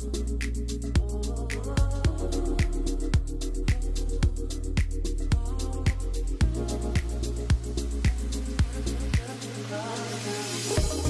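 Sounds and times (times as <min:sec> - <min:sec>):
sustained bass notes: 0:00.0 - 0:09.3
kick drum beat: 0:01.8 - 0:09.3, 0:10.8 - 0:11.0.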